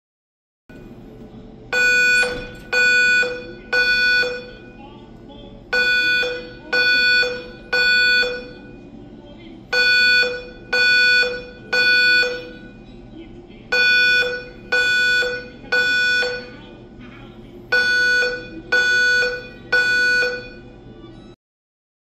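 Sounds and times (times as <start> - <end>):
fire alarm beeping: 1.7 - 5.1, 5.7 - 8.9, 9.7 - 12.9, 13.7 - 16.7, 17.7 - 21.4.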